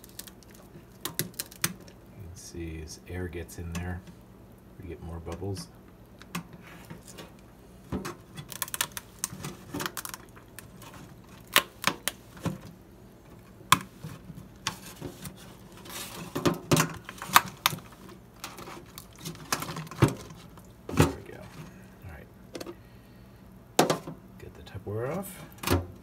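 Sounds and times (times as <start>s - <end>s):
plastic container clicking and crackling: 0.0s - 2.0s, 8.0s - 12.6s.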